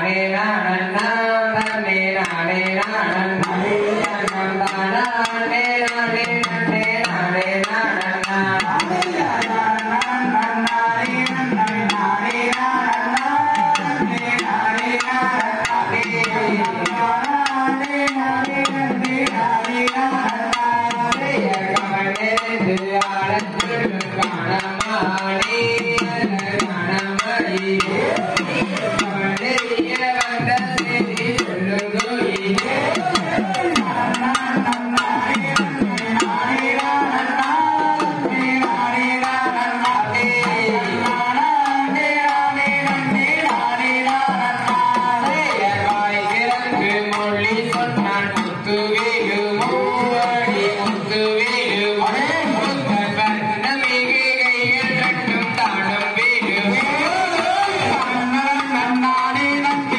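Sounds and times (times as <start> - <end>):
drum beaten with a stick: 0.0 - 59.9
person singing: 0.0 - 59.9.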